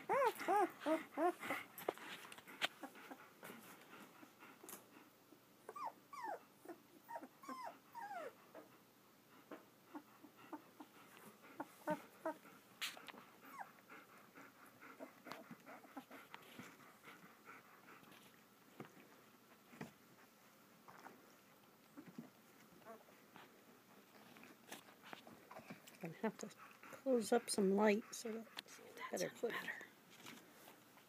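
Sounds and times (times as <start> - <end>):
puppies whimpering: 0.0 - 1.7, 5.7 - 8.4, 11.6 - 12.4.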